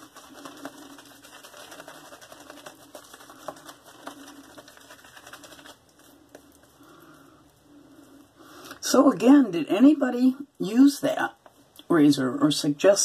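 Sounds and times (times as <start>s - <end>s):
shaving brush wet swishing: 0.0s - 6.8s.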